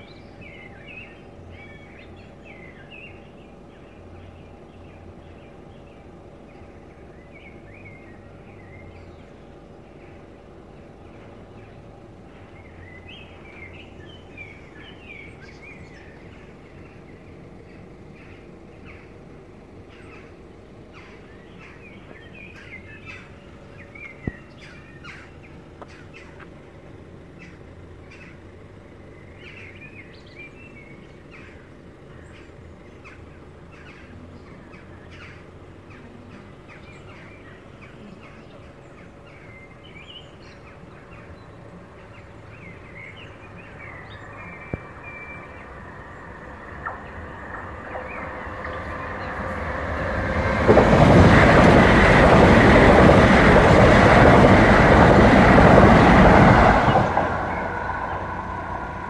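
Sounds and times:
low background rumble: 0.0 - 59.0
small birds chirping: 0.0 - 59.0.

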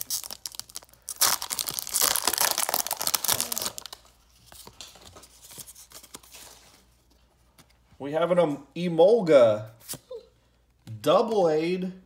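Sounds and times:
foil wrapper tearing and crinkling: 0.0 - 4.1
cards rustling and clicking: 1.6 - 6.9.

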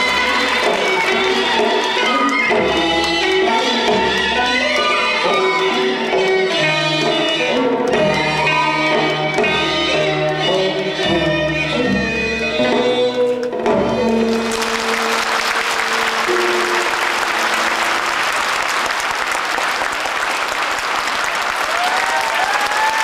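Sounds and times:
audience applause: 0.0 - 2.6, 14.1 - 23.0
stage music held notes: 0.0 - 23.0.

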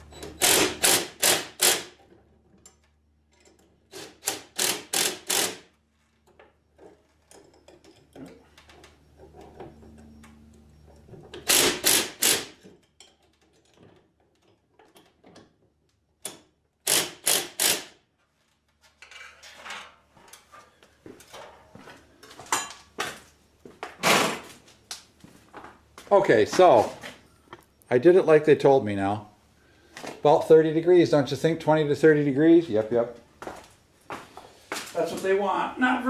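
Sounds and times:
cordless drill rattling bursts: 0.4 - 2.0, 3.9 - 5.7, 11.4 - 12.6, 16.8 - 18.0
faint motor hum: 8.5 - 11.5.

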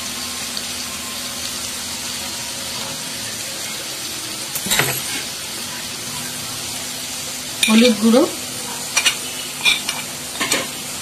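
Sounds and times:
masala sizzling in oil: 0.0 - 11.0.

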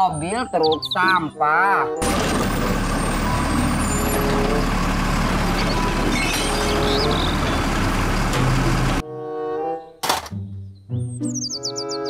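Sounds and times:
garbage truck running: 2.0 - 9.0
truck arm lifting trash cart: 2.0 - 9.0.

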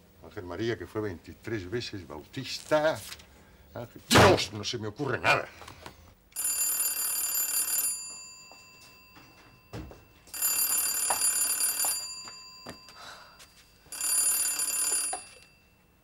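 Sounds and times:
telephone bell ringing: 6.4 - 16.0.

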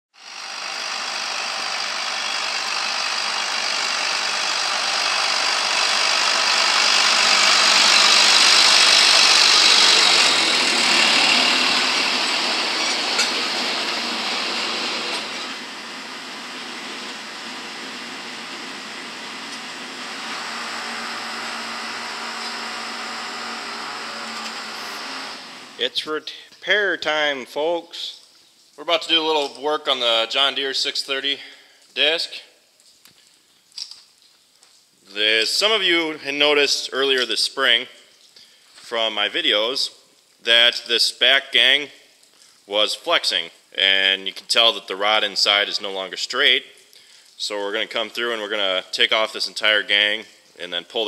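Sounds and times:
tractor engine running: 0.2 - 25.9.

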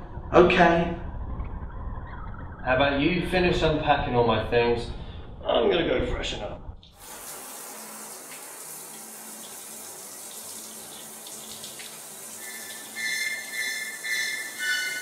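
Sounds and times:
shower water spraying: 6.9 - 15.0
high held music tones: 12.4 - 15.0.

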